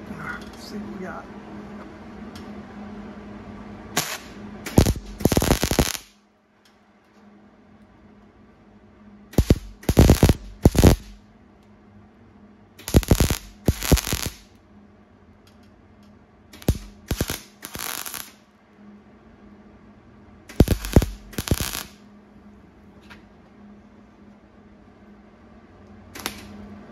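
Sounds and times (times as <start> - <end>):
faint steady welder hum: 0.0 - 26.9
welder crackling bursts: 4.0 - 6.2, 9.4 - 11.2, 12.8 - 14.5, 16.6 - 18.4, 20.5 - 22.0, 26.2 - 26.5.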